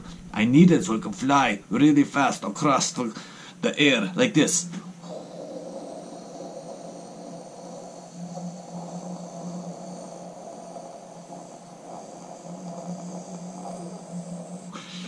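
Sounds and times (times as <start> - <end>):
faint room hiss: 0.0 - 15.0
man humming a low drone: 3.6 - 15.0.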